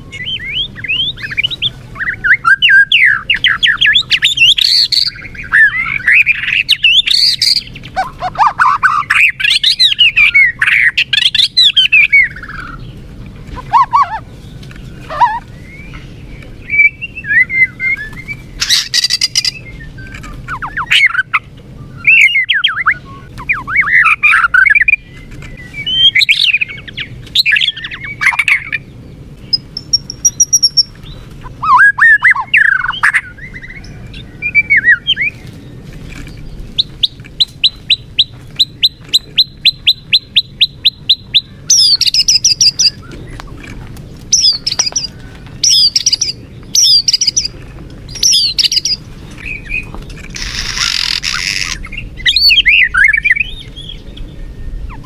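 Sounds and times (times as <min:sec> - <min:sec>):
bird singing whistled phrases: 0:00.0 - 0:12.7, 0:16.6 - 0:28.8, 0:31.6 - 0:35.4, 0:36.8 - 0:43.1, 0:44.3 - 0:47.5, 0:48.1 - 0:49.9, 0:50.6 - 0:55.0
bird harsh calls: 0:00.0 - 0:55.0.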